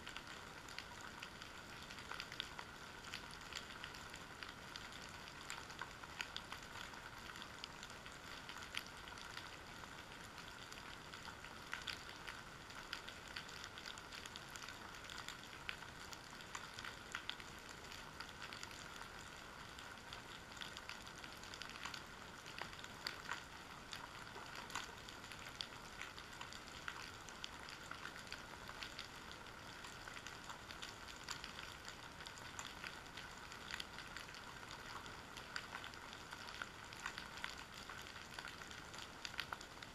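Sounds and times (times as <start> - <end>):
underwater sharp clicks crackling: 19.8 - 39.9.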